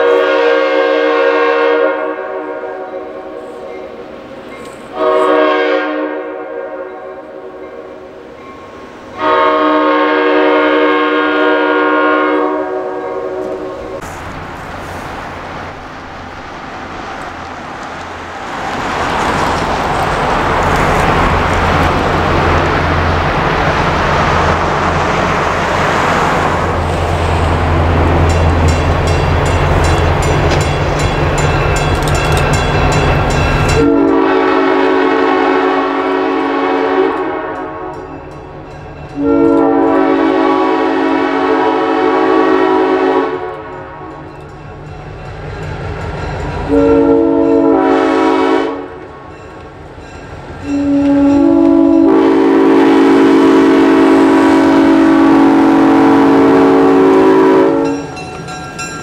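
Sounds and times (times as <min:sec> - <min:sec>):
train air horn blasts: 0:00.0 - 0:03.7, 0:04.9 - 0:08.1, 0:09.2 - 0:14.0, 0:33.6 - 0:38.2, 0:39.2 - 0:44.3, 0:46.6 - 0:49.3, 0:50.6 - 0:58.1
diesel locomotive engine drone: 0:00.0 - 0:59.0
wheels rumbling on rails: 0:07.7 - 0:59.0.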